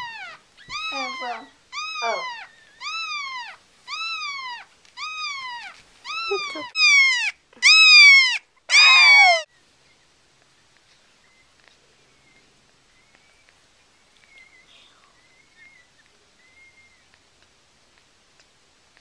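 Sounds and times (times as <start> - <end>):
puppy crying: 0.0 - 9.5
faint puppy squeaks: 0.0 - 18.1.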